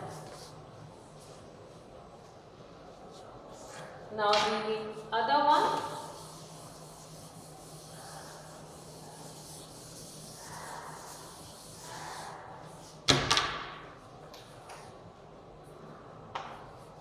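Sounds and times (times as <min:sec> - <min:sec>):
duster wiping chalkboard: 0:02.8 - 0:13.1.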